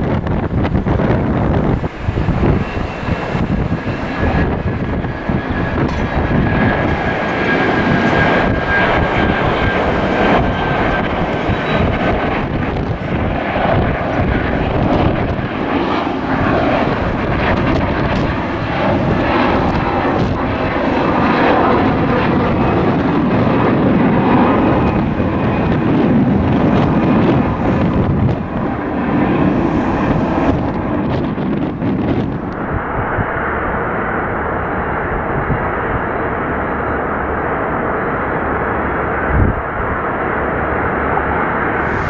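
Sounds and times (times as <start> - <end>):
jet airliner roar: 0.0 - 42.0
faint high whine: 40.4 - 42.0.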